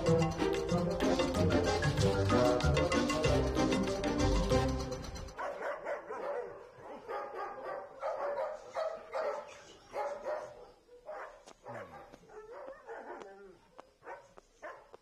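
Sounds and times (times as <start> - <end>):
dogs barking: 5.4 - 15.0.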